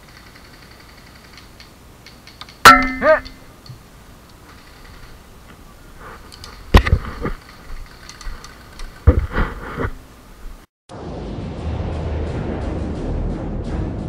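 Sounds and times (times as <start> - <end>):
music: 10.9 - 14.0.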